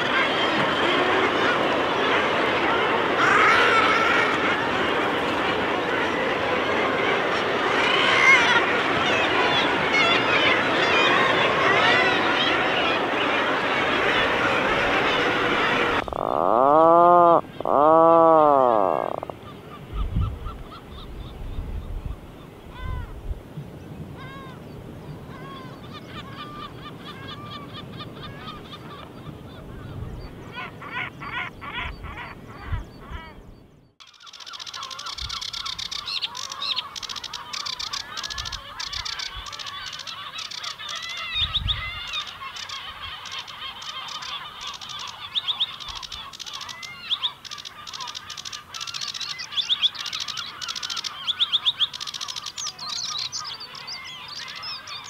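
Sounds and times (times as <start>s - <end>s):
seabirds calling: 0.0s - 55.0s
low wind rumble: 10.6s - 16.6s, 17.2s - 34.0s.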